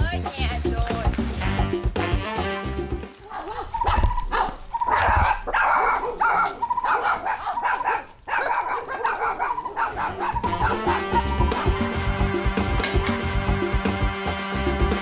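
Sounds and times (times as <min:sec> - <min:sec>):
dog barking: 0:03.3 - 0:11.8.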